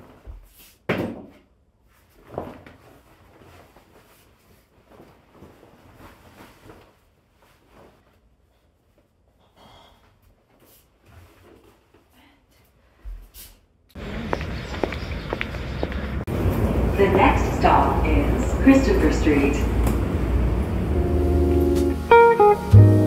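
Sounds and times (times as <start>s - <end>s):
coat fabric rustling: 1.8s - 9.2s.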